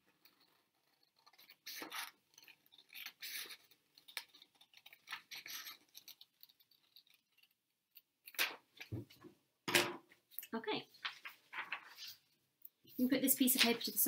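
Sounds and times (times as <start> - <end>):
paper rustling: 0.1 - 7.6, 10.9 - 12.4
scissors snipping paper: 0.2 - 8.6.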